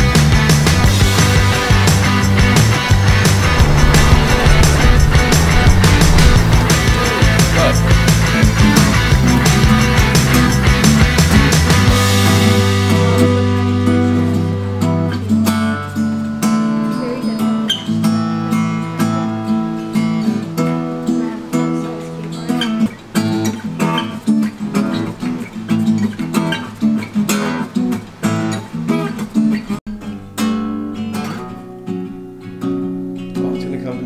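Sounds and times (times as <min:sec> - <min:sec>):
acoustic guitar strummed: 0:01.0 - 0:21.8.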